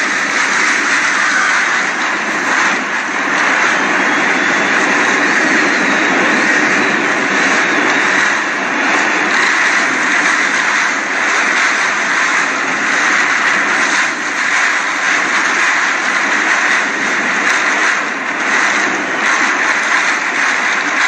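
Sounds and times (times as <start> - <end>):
driving rain: 0.0 - 21.0
strong wind blowing: 0.0 - 21.0.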